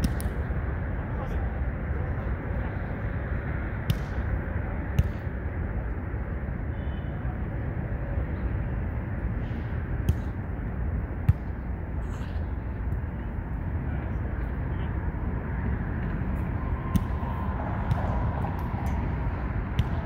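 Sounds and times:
low traffic rumble: 0:00.0 - 0:20.0
volleyball slaps: 0:03.8 - 0:04.2, 0:05.0 - 0:05.2, 0:16.9 - 0:19.1, 0:19.7 - 0:20.0.

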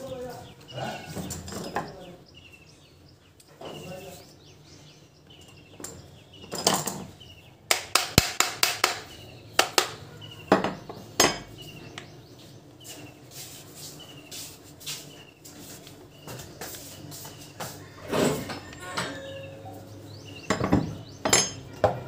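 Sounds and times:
metal tools clinking on workbench: 0:18.3 - 0:19.8, 0:20.5 - 0:22.0.

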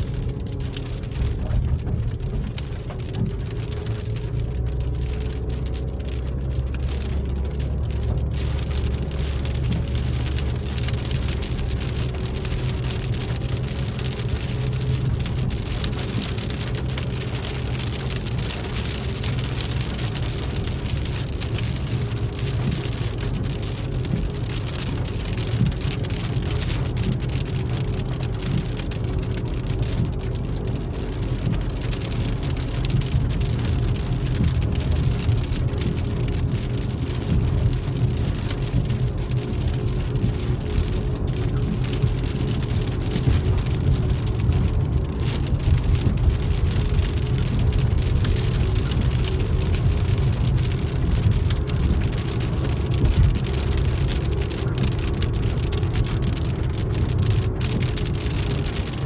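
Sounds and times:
engine and road noise: 0:00.0 - 0:59.0
rain on a car roof: 0:00.0 - 0:59.0.

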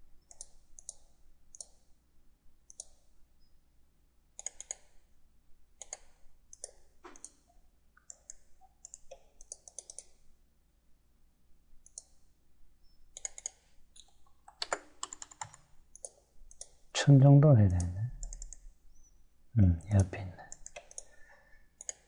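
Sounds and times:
computer mouse clicking: 0:00.2 - 0:01.9, 0:02.7 - 0:03.1, 0:04.4 - 0:05.0, 0:05.8 - 0:10.2, 0:11.8 - 0:12.3, 0:13.1 - 0:16.8, 0:17.7 - 0:19.1, 0:19.8 - 0:21.2, 0:21.8 - 0:22.0.

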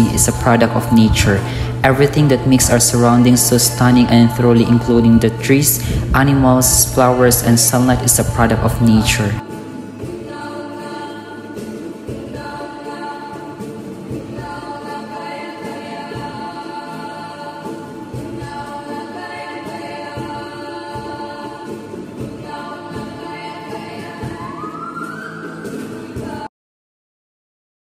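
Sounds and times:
slow held chords music: 0:00.0 - 0:11.3.

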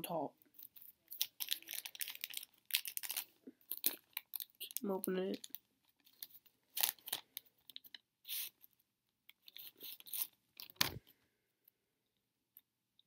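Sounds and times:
wrapper crinkling and tearing: 0:00.6 - 0:08.6, 0:09.4 - 0:11.0.

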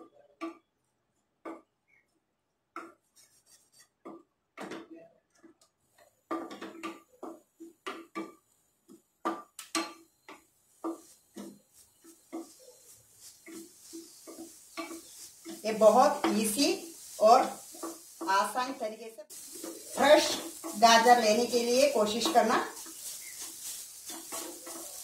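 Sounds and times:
wooden spatula scraping a pan: 0:02.8 - 0:04.2, 0:09.8 - 0:25.0.

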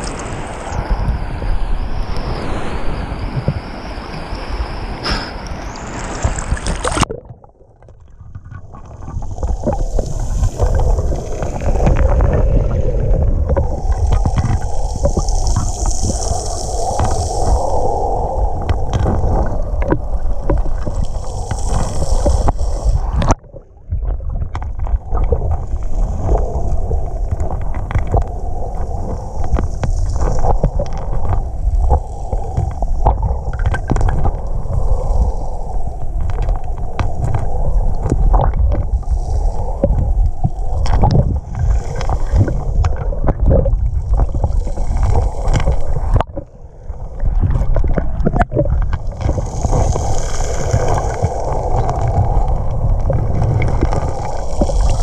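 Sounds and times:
muffled underwater rumble and gurgling: 0:00.0 - 0:55.0
wind on microphone: 0:00.0 - 0:55.0
water lapping: 0:24.0 - 0:55.0.

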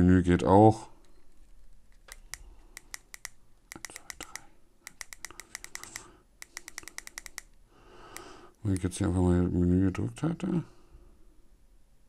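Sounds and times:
small buttons clicking: 0:02.0 - 0:08.9.

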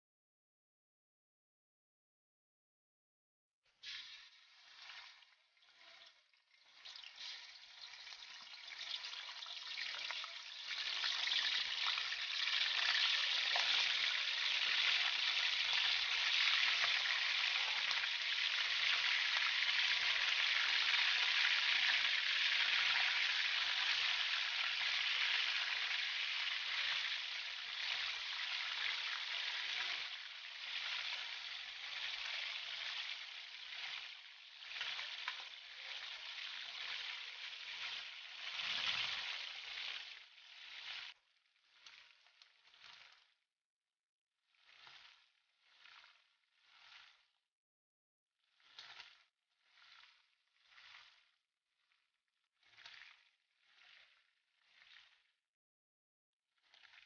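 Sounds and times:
chicken sizzling in hot oil: 0:03.8 - 0:41.2.

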